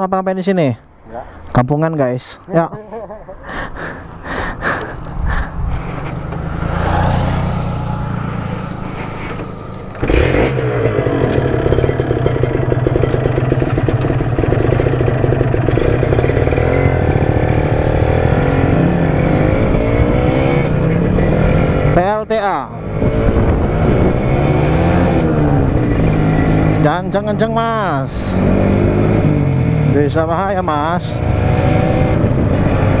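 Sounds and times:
wind rushing over microphone: 0:05.0 - 0:09.2, 0:16.5 - 0:22.0, 0:22.8 - 0:26.8, 0:31.2 - 0:33.0
motorcycle engine running: 0:05.5 - 0:22.1, 0:22.8 - 0:33.0.

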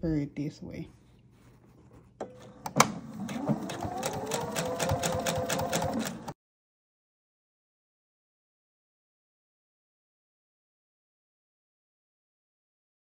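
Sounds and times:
sewing machine stitching: 0:02.6 - 0:06.4.

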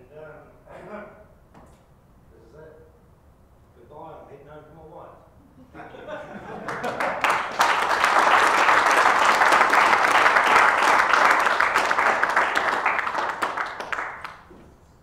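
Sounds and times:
crowd applauding: 0:06.4 - 0:14.5.

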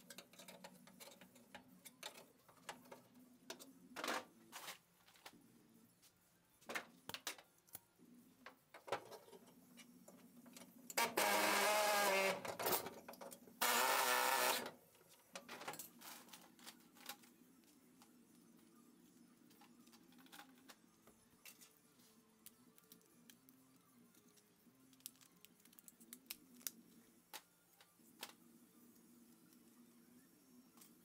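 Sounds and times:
pneumatic air tool bursts: 0:13.6 - 0:14.6.

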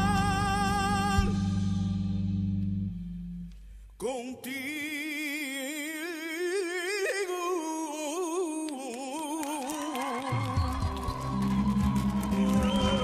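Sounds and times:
person singing with vibrato: 0:00.0 - 0:02.3, 0:04.0 - 0:11.0, 0:12.2 - 0:13.0.

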